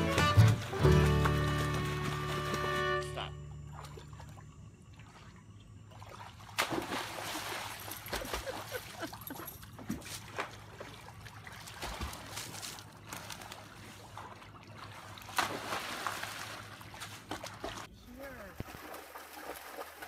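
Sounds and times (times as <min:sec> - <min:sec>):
dog splashing in water: 0:03.7 - 0:17.9, 0:18.6 - 0:20.0.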